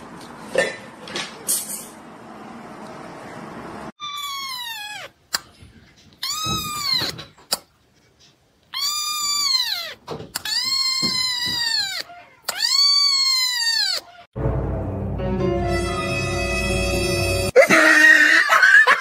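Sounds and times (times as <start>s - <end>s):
kitten meowing high-pitched: 4.0s - 5.1s, 6.2s - 7.2s, 8.7s - 14.2s, 15.7s - 17.5s.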